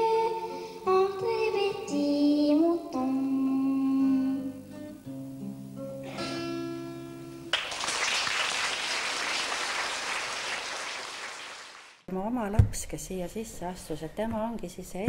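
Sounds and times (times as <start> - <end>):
audience applause: 7.5 - 12.0.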